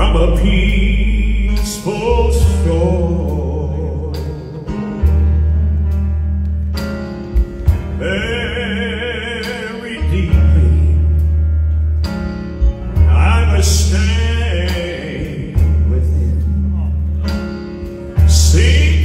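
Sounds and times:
man singing with vibrato: 0.0s - 5.3s, 7.9s - 11.4s, 13.0s - 19.0s
band accompaniment: 0.0s - 19.0s.

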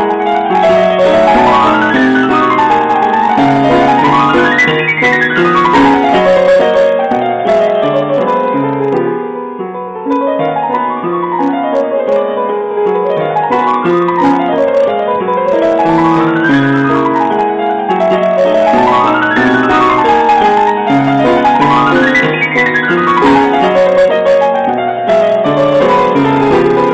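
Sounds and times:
piano fast runs: 0.0s - 26.9s.

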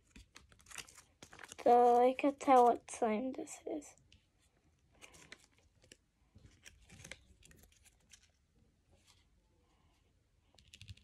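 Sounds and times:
plastic packet crinkling: 0.1s - 3.0s, 5.0s - 8.4s.

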